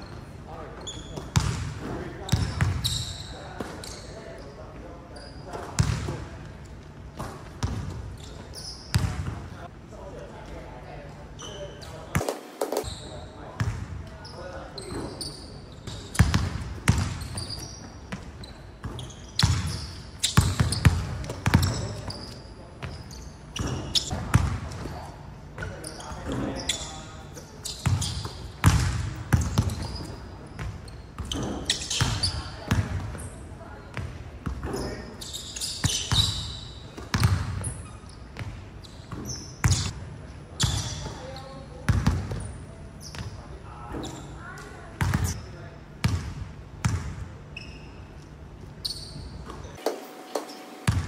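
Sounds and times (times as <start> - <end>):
sneakers squeaking on floor: 0.0 - 9.6, 11.1 - 46.2, 46.8 - 51.0
basketballs bouncing on hardwood: 1.3 - 1.7, 5.8 - 6.2, 8.9 - 9.3, 16.1 - 17.4, 18.1 - 22.1, 27.8 - 33.2.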